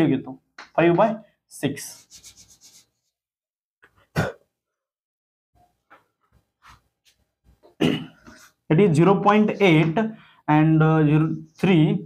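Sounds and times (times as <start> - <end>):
man coughing: 4.1 - 4.5, 7.7 - 8.5.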